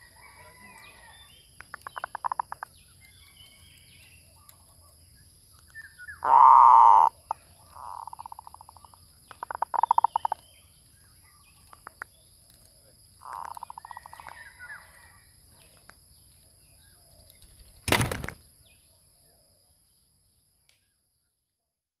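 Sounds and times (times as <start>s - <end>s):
dove trilled coos: 6.1s - 10.4s.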